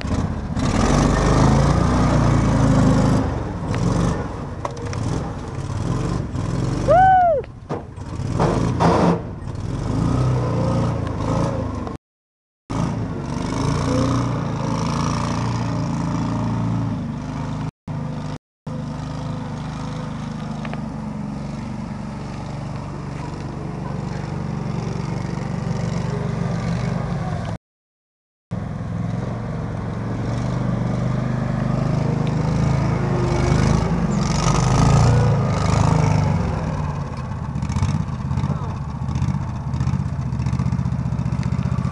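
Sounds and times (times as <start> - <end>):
atv engine running: 12.8 - 27.6, 28.5 - 41.9.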